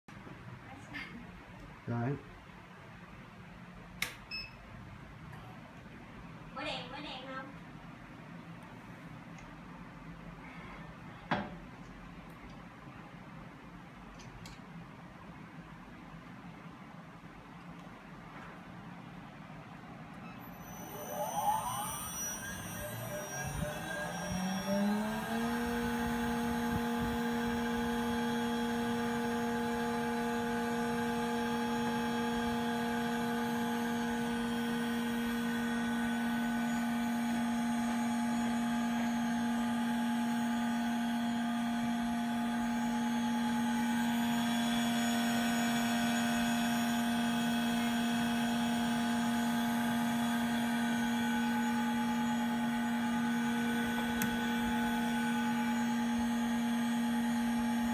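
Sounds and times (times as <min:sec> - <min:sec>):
stirrer motor whining: 0:20.4 - 0:57.9.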